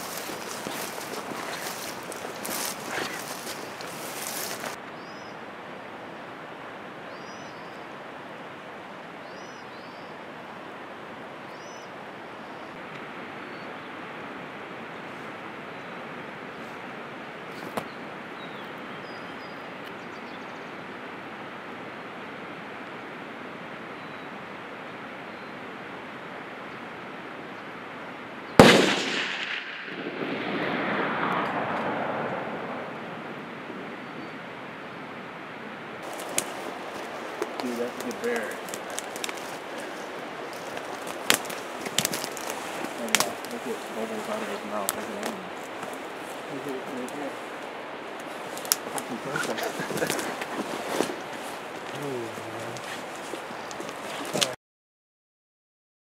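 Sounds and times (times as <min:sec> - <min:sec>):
bird chirping: 0:00.0 - 0:05.4, 0:07.1 - 0:07.9, 0:09.2 - 0:10.2
outdoor hiss: 0:00.0 - 0:29.9, 0:35.9 - 0:54.6
rifle shot: 0:28.6 - 0:31.9.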